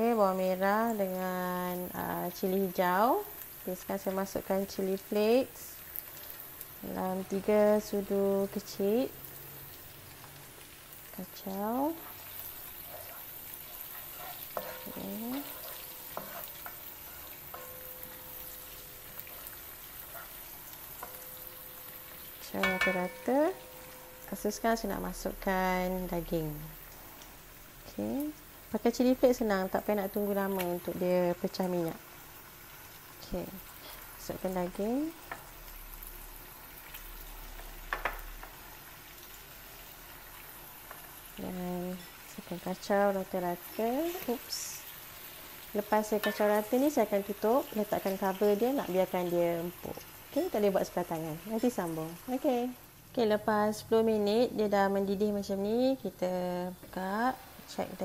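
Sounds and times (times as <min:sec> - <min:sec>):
food sizzling in hot oil: 0:00.0 - 0:58.0
spatula scraping and tapping wok: 0:11.9 - 0:24.7, 0:35.2 - 0:35.5, 0:37.5 - 0:38.6, 0:46.1 - 0:46.7.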